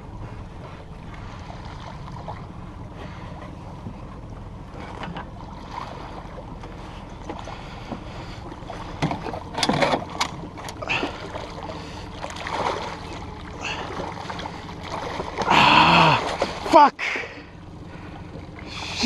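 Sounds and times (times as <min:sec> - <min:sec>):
boat engine drone: 0:00.0 - 0:19.0
fish splashing in water: 0:07.2 - 0:19.0.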